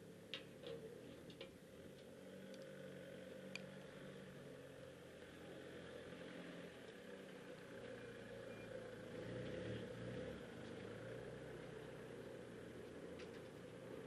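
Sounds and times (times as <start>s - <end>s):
light ticks: 3.5s - 3.9s.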